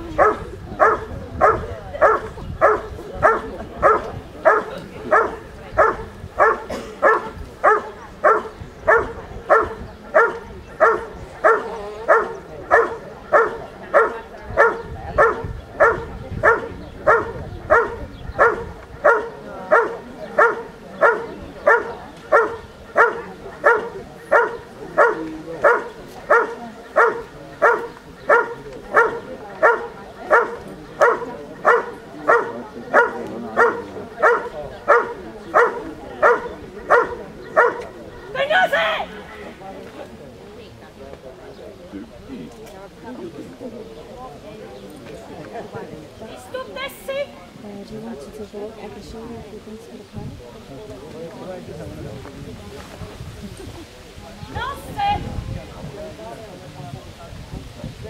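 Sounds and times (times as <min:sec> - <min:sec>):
dog barking: 0:00.2 - 0:38.0.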